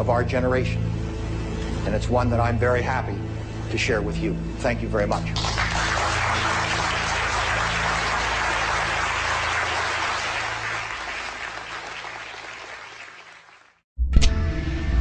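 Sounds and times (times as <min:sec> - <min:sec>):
audience applauding: 0:05.4 - 0:13.8.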